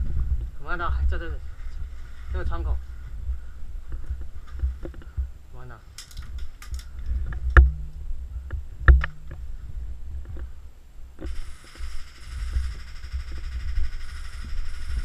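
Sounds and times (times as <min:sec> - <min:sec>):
low rumble of movement: 0:00.0 - 0:15.0
sharp knocks: 0:08.9 - 0:09.4
high buzzing hiss: 0:11.1 - 0:15.0.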